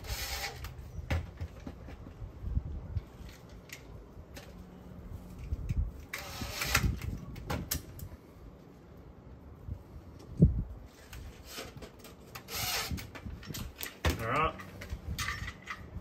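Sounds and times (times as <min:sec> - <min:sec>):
cordless drill driving screws: 0:00.0 - 0:00.7, 0:06.1 - 0:07.0, 0:12.3 - 0:13.1.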